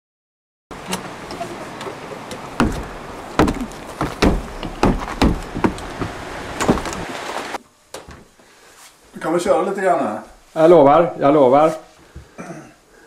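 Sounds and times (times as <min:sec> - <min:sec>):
front door opening: 0:00.7 - 0:08.3
steady hiss: 0:00.7 - 0:13.0
heavy footsteps thudding: 0:02.4 - 0:07.6.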